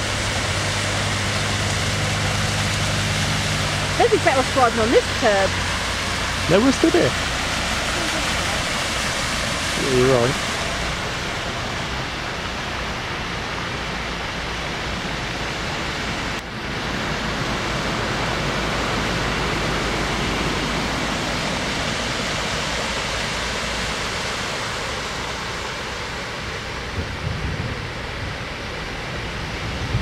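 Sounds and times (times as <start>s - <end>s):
heavy rain on flooded road: 0.0s - 30.0s.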